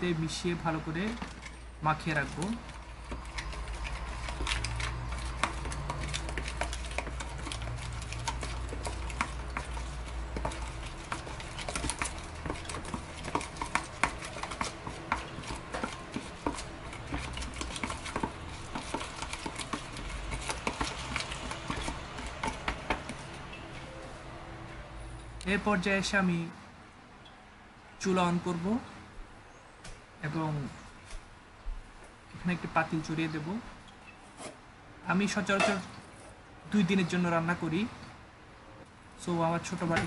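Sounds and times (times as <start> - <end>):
chicken mixed by hand in paste: 0.0 - 24.5.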